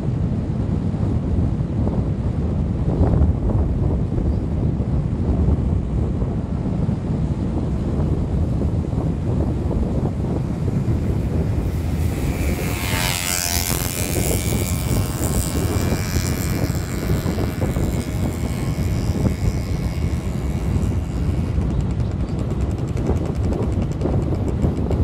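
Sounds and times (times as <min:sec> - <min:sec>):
wind buffeting microphone: 0:00.0 - 0:25.0
vehicle engine running: 0:07.8 - 0:25.0
rising and falling whine: 0:09.1 - 0:22.0.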